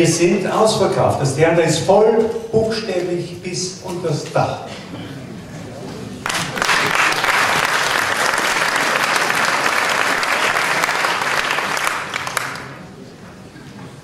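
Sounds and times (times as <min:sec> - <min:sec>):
audience applauding: 0:06.2 - 0:12.8.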